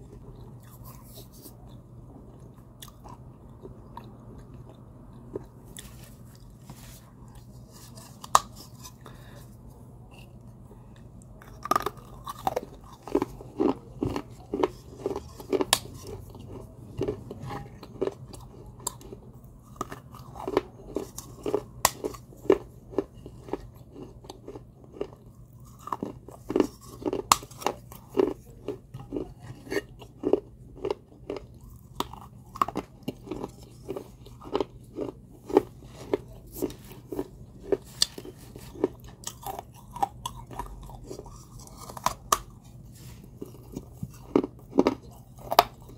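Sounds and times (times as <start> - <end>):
chewing crunchy clay: 10.0 - 45.9.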